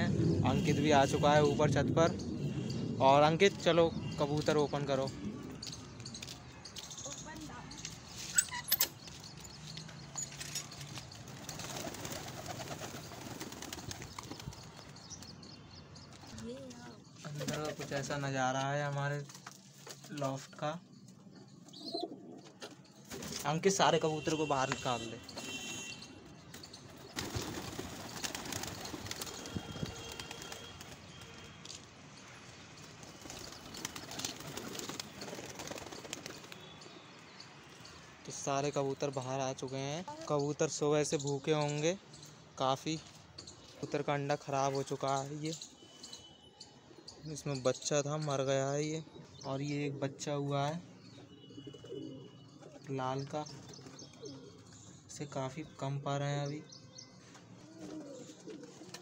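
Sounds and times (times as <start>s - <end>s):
pigeon wings flapping: 11.0s - 15.0s, 27.1s - 31.5s, 32.9s - 36.7s
pigeons cooing: 21.8s - 22.6s, 51.4s - 52.8s, 53.9s - 54.7s, 57.7s - 59.0s.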